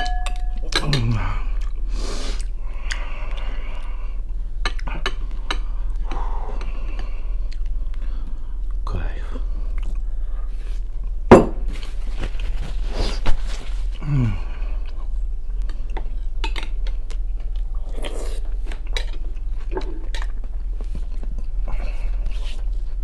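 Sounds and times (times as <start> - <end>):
fork clinking on glass bowls: 0.0 - 1.0
steady low hum: 0.0 - 23.0.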